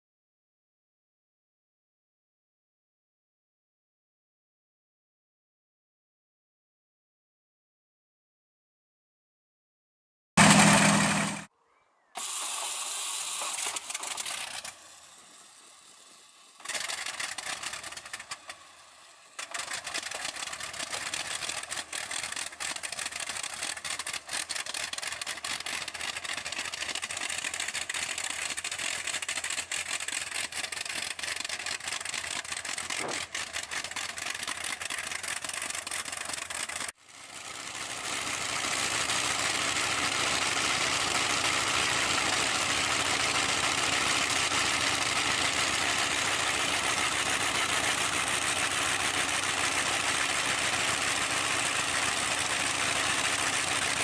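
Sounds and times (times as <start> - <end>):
engine starting burst: 10.4 - 11.5, 12.2 - 18.6, 19.4 - 36.9
piston engine running roughly: 10.4 - 11.5, 12.2 - 54.0.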